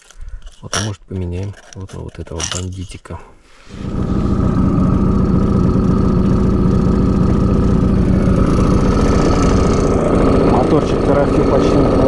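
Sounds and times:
outboard motor idling: 3.7s - 12.0s.

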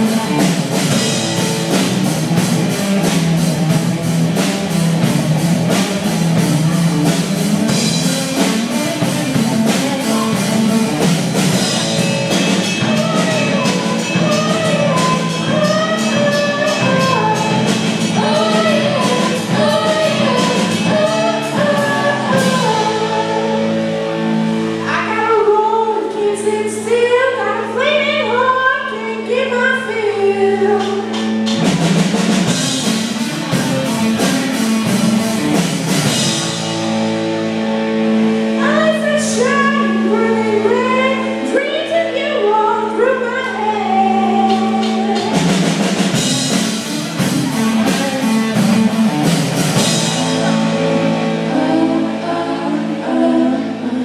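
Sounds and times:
rock band riff: 0.0s - 25.0s, 30.6s - 54.0s
person singing: 7.7s - 23.9s, 38.6s - 46.4s, 47.2s - 54.0s.

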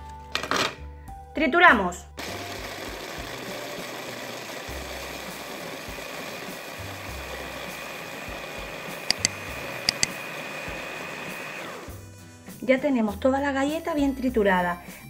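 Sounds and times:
blade grinding biscuits: 2.2s - 11.9s
electric chopper motor whine: 2.2s - 11.9s
sharp clicks: 9.1s - 10.1s.

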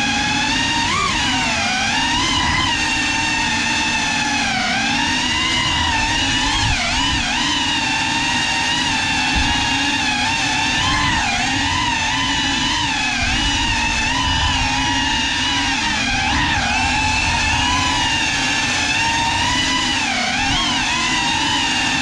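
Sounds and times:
drone motors and propellers whining: 0.0s - 22.0s.

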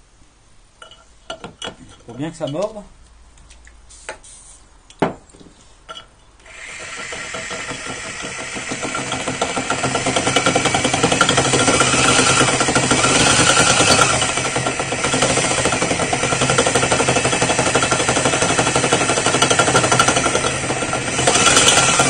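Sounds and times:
drill grinding into ceramic: 6.4s - 22.0s.

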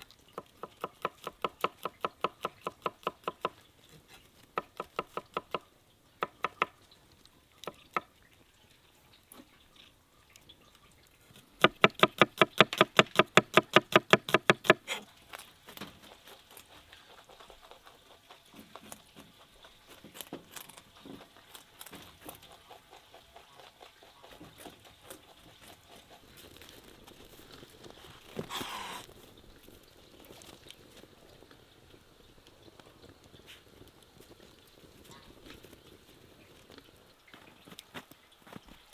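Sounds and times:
rabbits chewing: 0.0s - 38.9s
rustle: 0.0s - 38.9s
knife chopping on wooden board: 0.4s - 3.6s, 6.2s - 6.7s, 11.6s - 14.8s.

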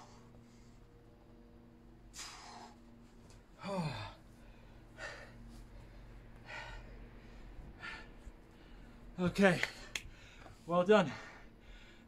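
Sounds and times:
man breathing hard: 0.0s - 0.8s, 2.1s - 2.9s, 3.6s - 12.0s
man groaning: 3.6s - 4.2s.

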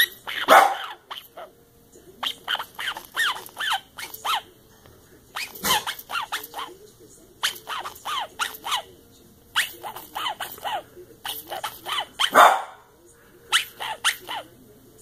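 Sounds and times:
plush toy squeaker squeaking: 0.0s - 1.5s, 2.2s - 4.5s, 5.3s - 6.7s, 7.4s - 8.9s, 9.5s - 12.4s, 13.5s - 14.5s
dog chewing toy: 2.2s - 4.4s, 5.3s - 6.7s, 7.4s - 8.8s.

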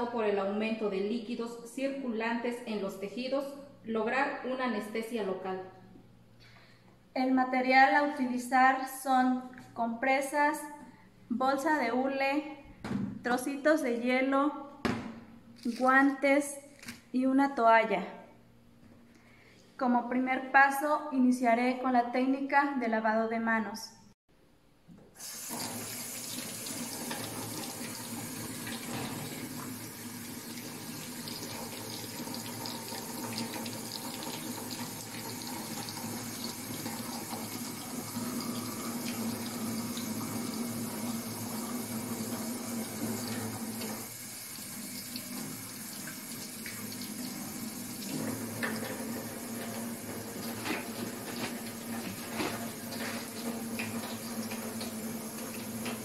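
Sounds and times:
tap water splashing into sink: 25.4s - 41.2s, 45.0s - 56.0s.

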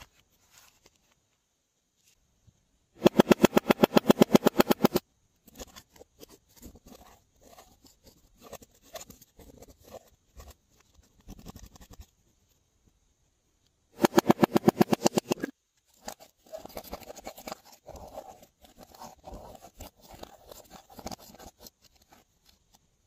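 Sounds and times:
rapid loud clicks: 3.0s - 5.0s, 14.0s - 15.5s
spatula scraping eyeshadow: 3.0s - 12.0s, 14.0s - 22.6s.

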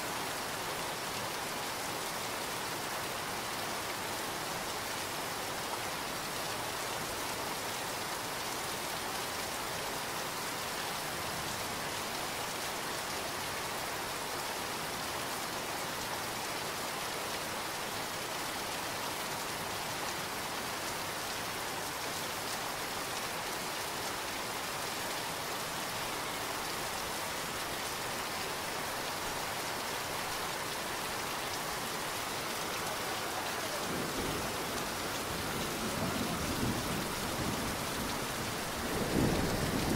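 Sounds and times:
torrential rain splashing: 0.0s - 39.9s
low rumble of thunder: 33.8s - 39.9s.

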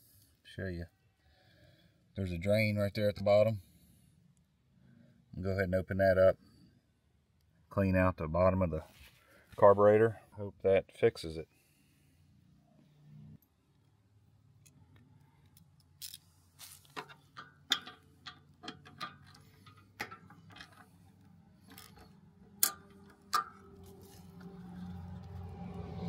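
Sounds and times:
metal tool clicking: 21.7s - 23.7s.

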